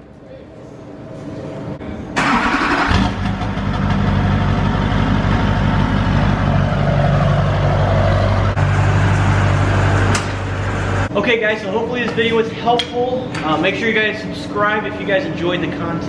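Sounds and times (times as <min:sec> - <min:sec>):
diesel engine cranking: 0:02.2 - 0:11.1
diesel engine idling: 0:02.2 - 0:11.1.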